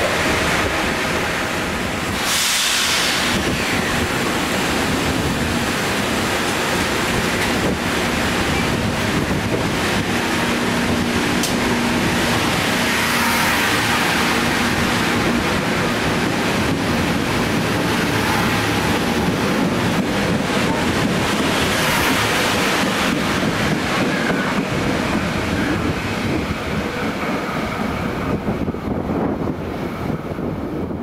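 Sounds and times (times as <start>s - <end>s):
train passing: 0.0s - 31.0s.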